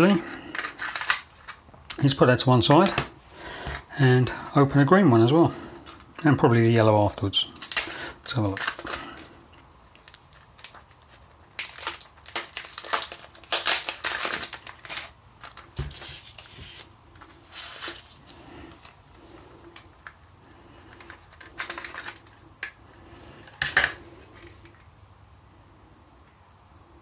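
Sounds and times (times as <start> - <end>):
cellophane wrapper crinkling: 0.1 - 3.0, 7.3 - 22.8.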